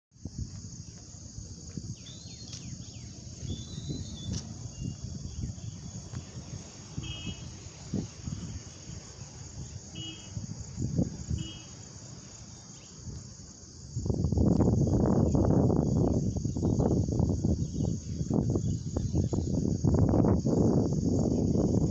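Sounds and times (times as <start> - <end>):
crickets chirping: 0.2 - 21.9
low rumbling: 1.2 - 12.0.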